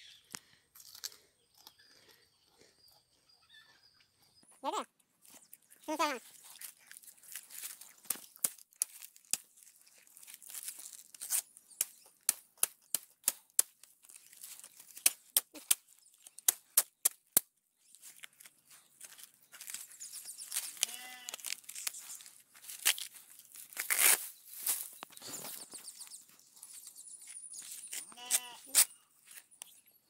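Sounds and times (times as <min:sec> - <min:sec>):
leaf sheaths snapping and tearing: 0:06.2 - 0:25.6.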